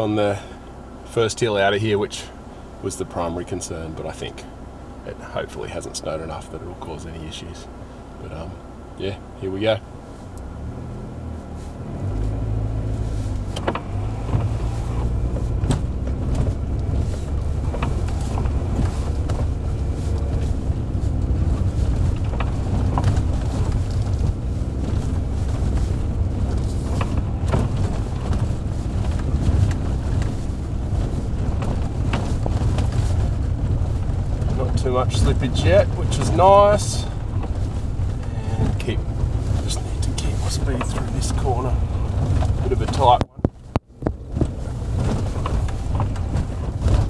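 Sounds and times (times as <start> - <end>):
car engine and road drone: 0.0 - 47.0
small knocks and rattles: 13.3 - 41.5, 42.1 - 47.0.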